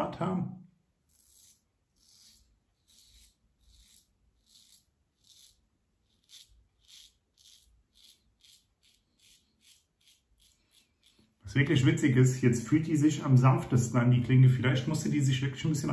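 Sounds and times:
razor scraping stubble: 1.0 - 12.9.

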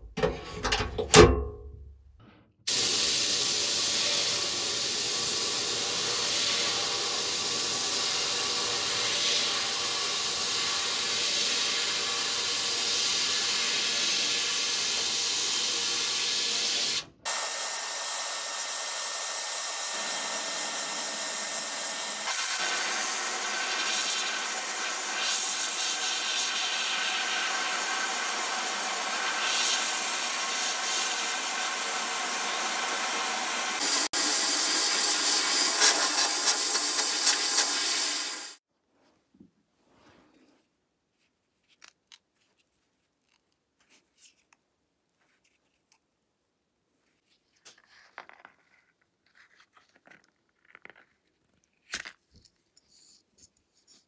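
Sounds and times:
sandblasting hiss: 2.7 - 38.6.

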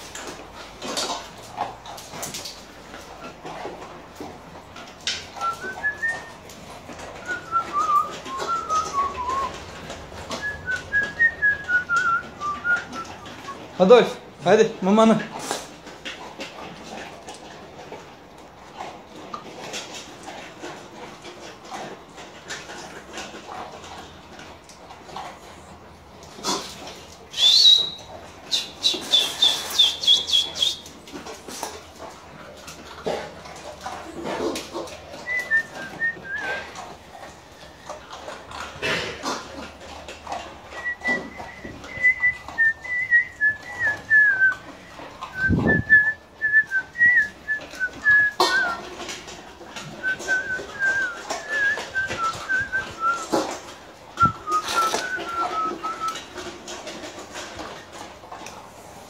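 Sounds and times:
person whistling a tune: 7.3 - 9.5, 10.4 - 13.0, 27.3 - 30.8, 40.8 - 44.5, 45.4 - 48.7, 50.0 - 53.2, 54.2 - 56.2
high whistle-like call: 27.3 - 30.8, 54.2 - 56.1.

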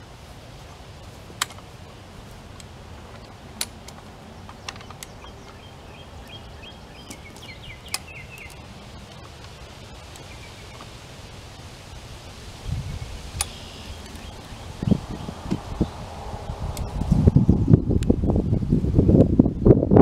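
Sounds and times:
outdoor background noise: 0.0 - 20.0
lever jack metal clicks: 2.6 - 5.6
bird chirping: 3.0 - 18.8.

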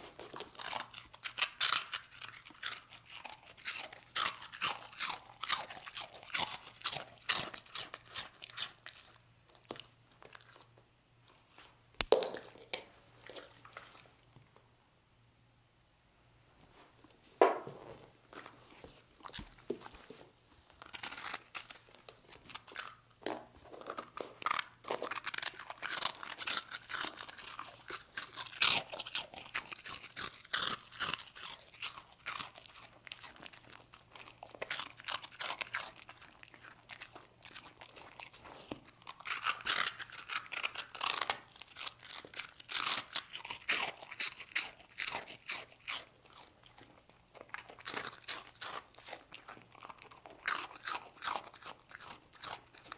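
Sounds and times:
dog crunching hard rusk: 0.0 - 9.0, 20.8 - 52.9.

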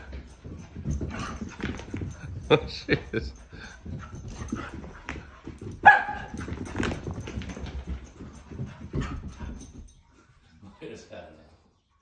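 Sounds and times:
dogs scuffling: 0.0 - 11.8
dog barking: 5.8 - 6.4.

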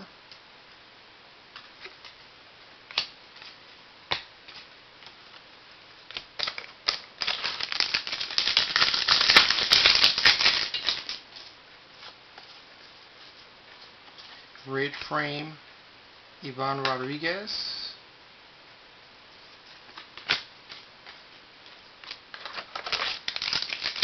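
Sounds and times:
card packaging crackling: 6.1 - 11.2, 22.0 - 24.0.

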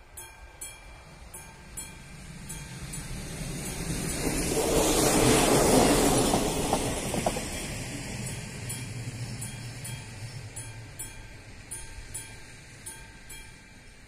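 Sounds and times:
diesel railcar rumble: 0.0 - 14.0
level crossing bell striking: 8.7 - 14.0.

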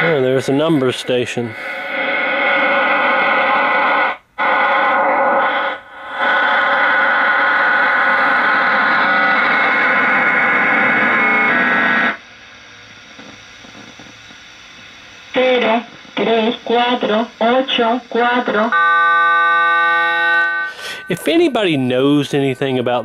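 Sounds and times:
distorted radio tone: 0.0 - 12.2, 12.9 - 23.0
radio static: 0.0 - 18.9, 20.5 - 23.0.

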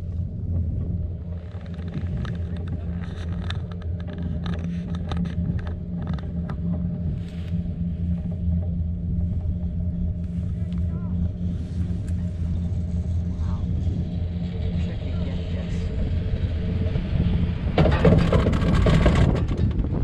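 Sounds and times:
tram rattles and clacks: 0.0 - 7.5, 12.0 - 20.0
tram rumbling on track: 0.0 - 20.0.

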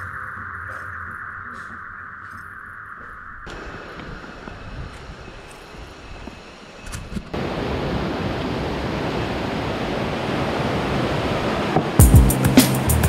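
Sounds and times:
stream rushing over rocks: 7.3 - 12.0.

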